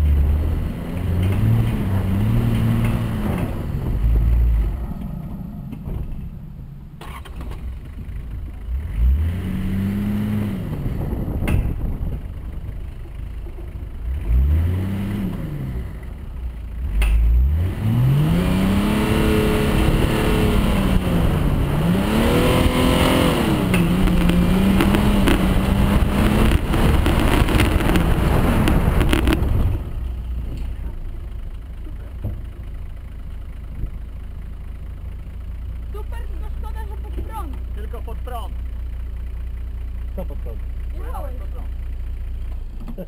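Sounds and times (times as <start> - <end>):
diesel engine under load: 0.0 - 43.0
knocks from rutted track: 1.2 - 8.0.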